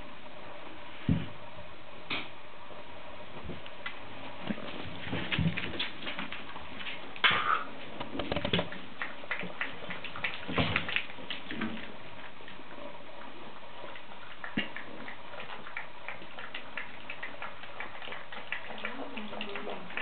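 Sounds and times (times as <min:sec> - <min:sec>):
puppies eating from metal bowl: 0:04.4 - 0:07.2, 0:07.8 - 0:20.0.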